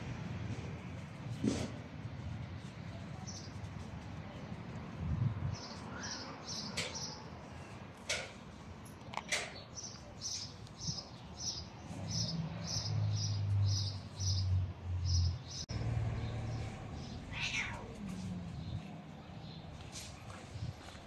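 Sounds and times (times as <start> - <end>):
cat growling: 17.3 - 18.5.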